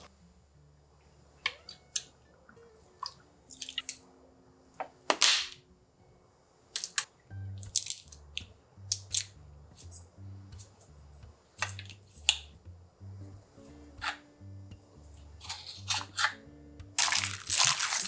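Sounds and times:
faint background music: 0:00.0 - 0:18.0
bottle caps clicking: 0:11.6 - 0:12.5, 0:15.4 - 0:16.4.

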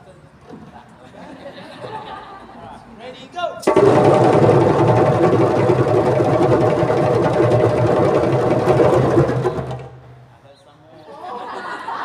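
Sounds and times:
djembes drumming fast roll: 0:03.6 - 0:10.3.

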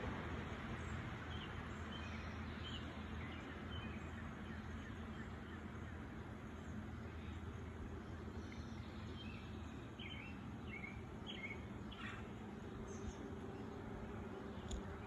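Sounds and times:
low rumble and hiss: 0:00.0 - 0:15.0
faint bird chirps: 0:01.3 - 0:13.3.

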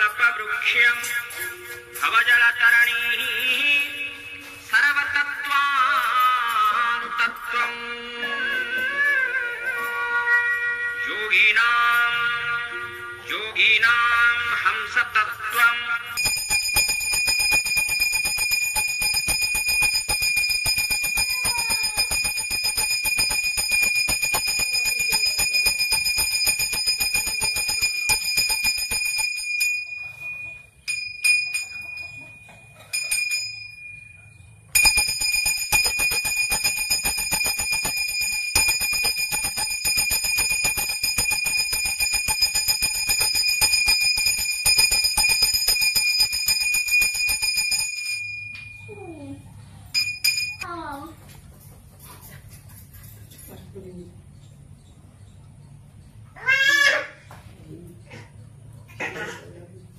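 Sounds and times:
bell ringing rapidly: 0:16.2 - 0:49.0, 0:50.0 - 0:50.6.

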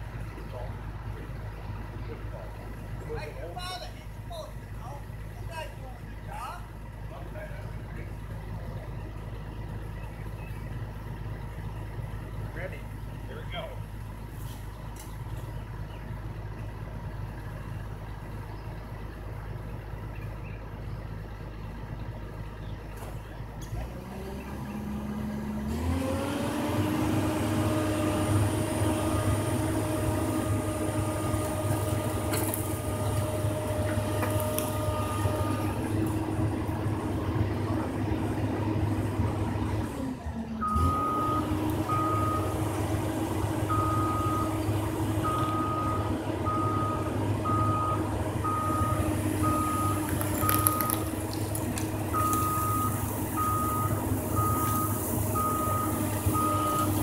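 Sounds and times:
excavator diesel engine revving: 0:00.0 - 0:57.0
intermittent beeping: 0:52.1 - 0:57.0.

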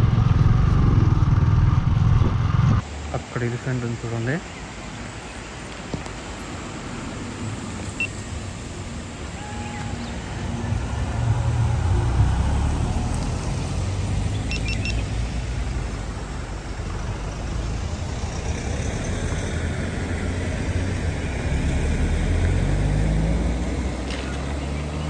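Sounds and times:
motorcycle engine rumble: 0:00.0 - 0:02.9, 0:05.9 - 0:22.0
road and wind noise: 0:00.0 - 0:25.0.

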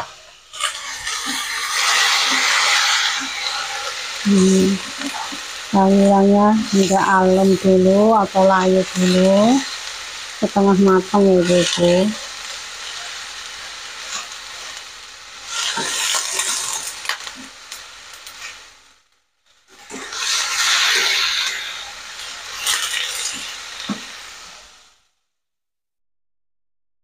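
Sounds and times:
wooden spatula scraping wok: 0:00.0 - 0:18.8, 0:19.7 - 0:24.8
vegetables sizzling in oil: 0:00.0 - 0:25.2.

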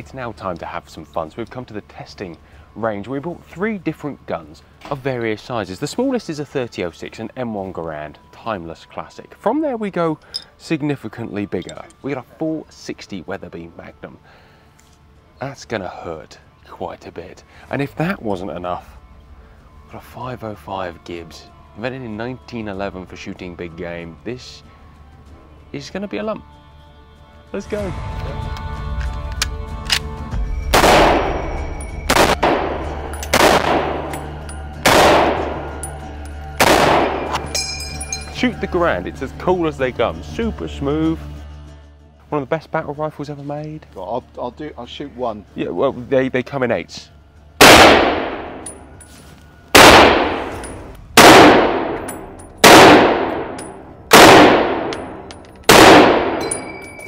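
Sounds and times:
light metallic clinks: 0:10.2 - 0:10.6, 0:11.5 - 0:12.1, 0:33.1 - 0:33.4, 0:34.1 - 0:34.8, 0:35.8 - 0:36.5, 0:37.3 - 0:38.4, 0:48.6 - 0:49.3, 0:50.5 - 0:51.0, 0:52.0 - 0:52.6, 0:53.5 - 0:53.9, 0:54.9 - 0:55.7, 0:56.4 - 0:57.0
rifle shots echoing indoors: 0:30.7 - 0:35.8, 0:36.6 - 0:37.4, 0:47.6 - 0:48.8, 0:49.7 - 0:56.8.

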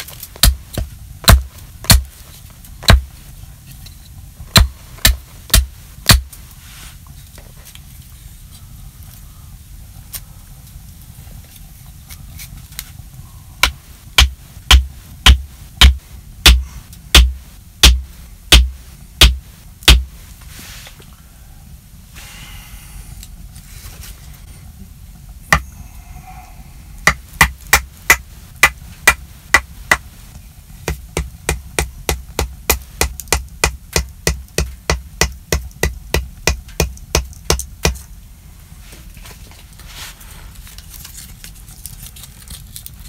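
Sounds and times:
hatchet striking wood: 0:00.4 - 0:02.1, 0:02.8 - 0:03.1, 0:04.5 - 0:06.3, 0:13.6 - 0:20.1, 0:27.0 - 0:30.0, 0:30.9 - 0:38.0.

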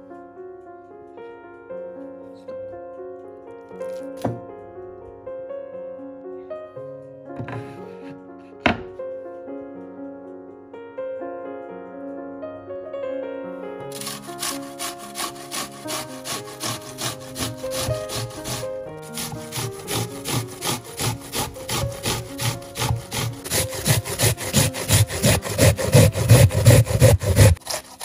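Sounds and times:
soft piano music: 0:00.0 - 0:27.6
onion rasping on grater: 0:13.9 - 0:28.0.

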